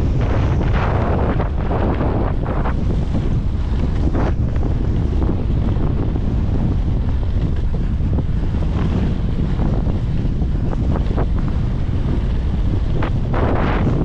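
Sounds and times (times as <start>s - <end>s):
bike clicking over wooden boardwalk: 0.0s - 14.0s
wind buffeting microphone: 0.0s - 14.0s.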